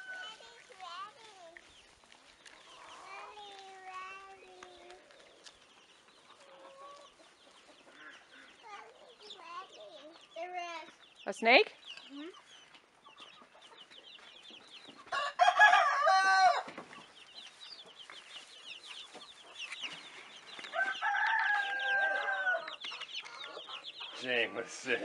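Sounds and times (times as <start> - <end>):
chicks peeping: 0.0 - 25.0
adult chicken calling: 14.9 - 17.0, 20.6 - 24.8.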